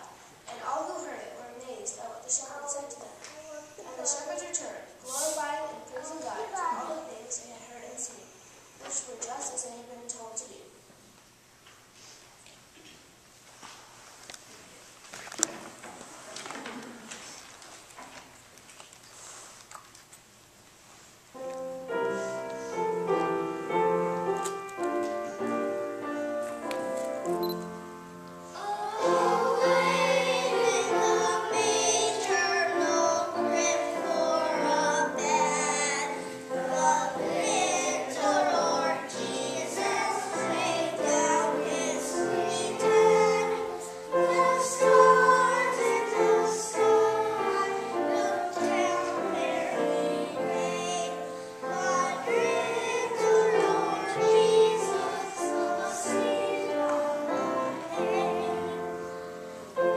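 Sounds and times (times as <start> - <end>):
children singing: 28.6 - 59.9.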